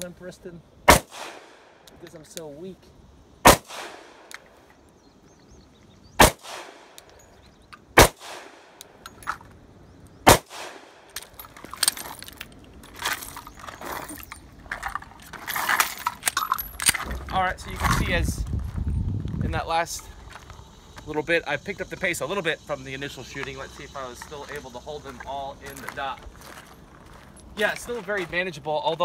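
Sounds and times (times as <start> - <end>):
pistol shots with echo: 0.9 - 1.7, 3.4 - 4.4, 6.2 - 7.1, 8.0 - 8.8, 10.2 - 11.1
metallic clicks and rattles: 11.1 - 17.3.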